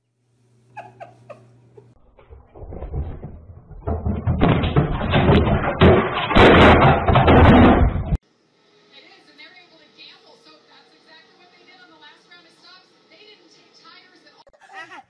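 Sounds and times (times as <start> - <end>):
tv crashing onto tile floor: 2.2 - 8.2.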